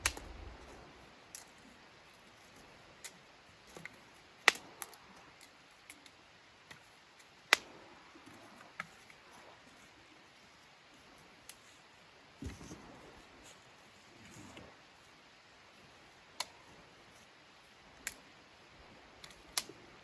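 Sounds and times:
dry sticks cracking: 0.0 - 9.4, 19.2 - 19.8
faint rustling: 7.8 - 17.9.

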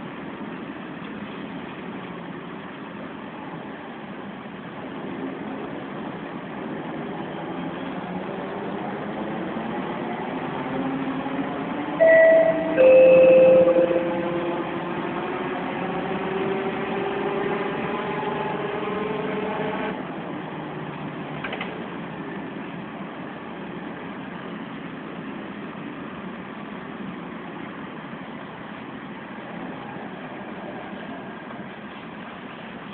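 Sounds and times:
short loud tones: 12.0 - 14.7.

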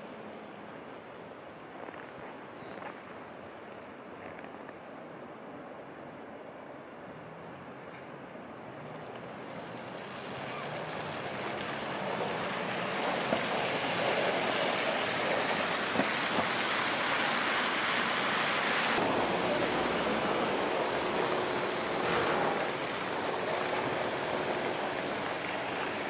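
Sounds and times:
tyres swishing through slush: 8.7 - 26.0.

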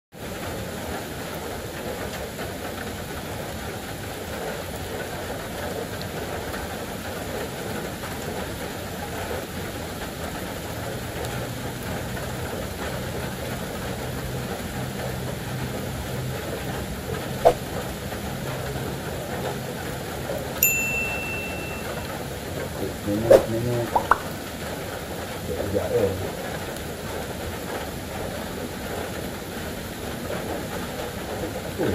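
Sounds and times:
short high beep: 20.6 - 22.1.

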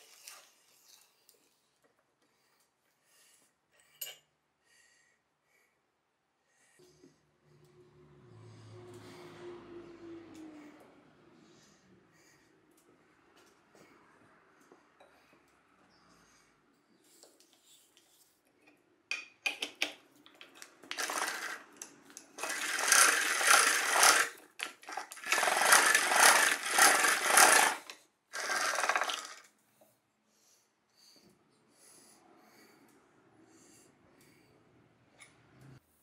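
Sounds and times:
drill bit grinding into wood: 20.9 - 21.7, 22.4 - 29.5
drill clicks: 20.9 - 29.5.

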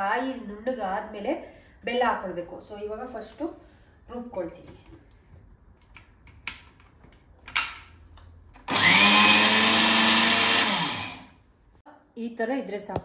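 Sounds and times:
mixer grinder motor running: 8.7 - 11.4.

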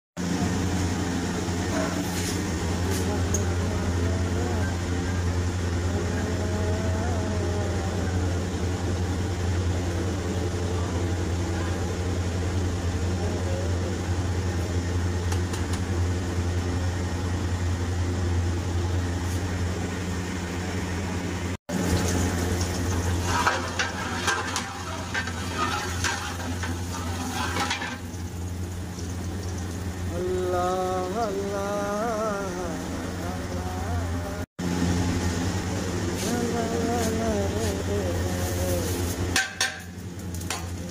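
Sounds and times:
oil sizzling: 0.2 - 5.9, 14.3 - 40.9
low stove hum: 0.2 - 40.9
metal ladle scraping a pot: 22.9 - 28.2.

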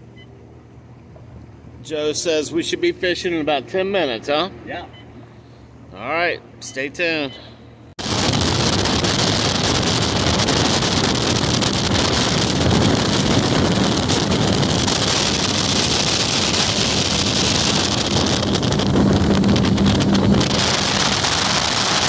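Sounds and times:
boat hull on water: 7.6 - 22.0
outboard motor: 8.0 - 22.0
wind buffeting microphone: 8.0 - 22.0.

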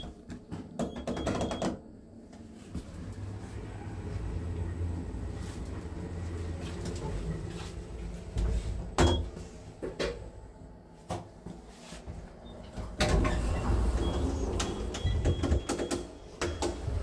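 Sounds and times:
lift car humming: 2.8 - 10.6, 12.2 - 17.0.

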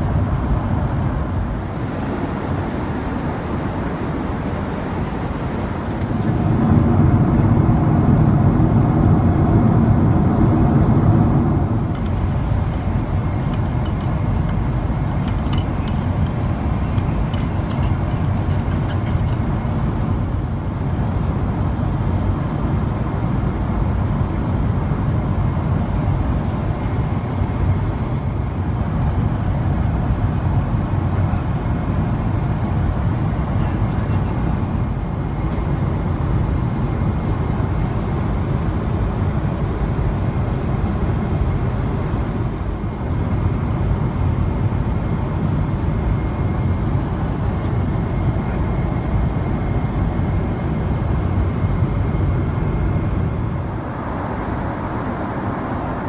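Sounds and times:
airplane cabin roar: 0.0 - 56.0
dishes and glassware clinking: 13.4 - 19.5.

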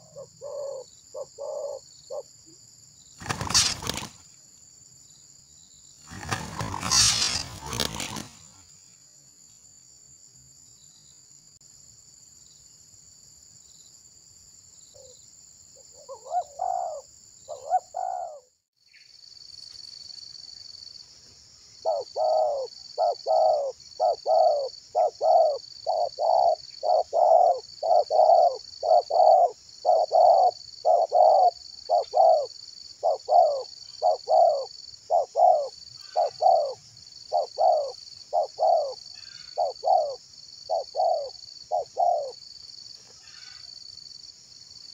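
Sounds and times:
doves cooing: 0.0 - 2.3, 3.2 - 4.2, 6.1 - 8.6, 16.0 - 18.5, 21.8 - 42.4.

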